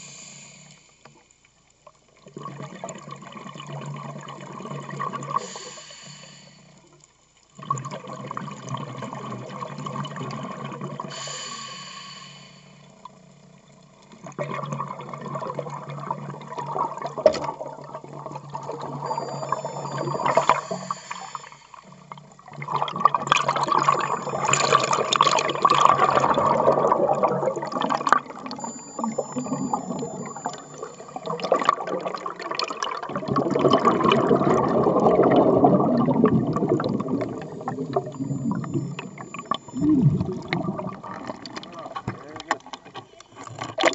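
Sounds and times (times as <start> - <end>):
underwater rushing water: 7.5 - 43.9
bubbling: 13.2 - 43.9
small clicks: 27.9 - 31.8.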